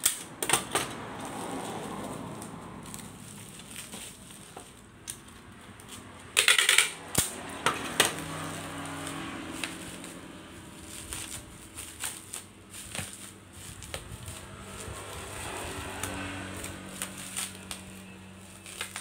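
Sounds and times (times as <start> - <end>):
packing tape ripping: 0.0 - 19.0
bubble wrap crinkling: 1.0 - 6.4, 8.1 - 19.0.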